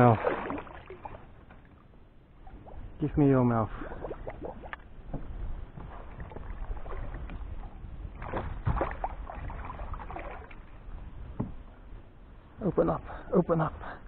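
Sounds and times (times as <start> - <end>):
water splashing from thrashing fish: 0.0 - 1.2, 8.2 - 10.6.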